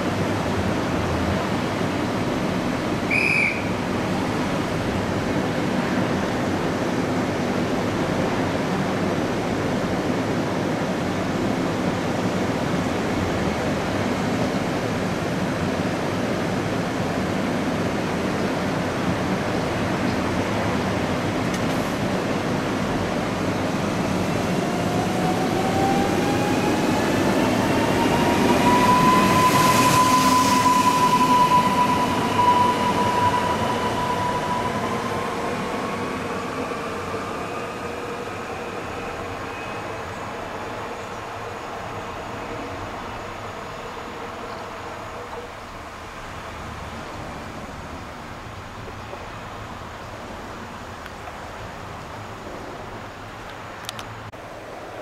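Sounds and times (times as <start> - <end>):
electric train humming: 17.9 - 46.1.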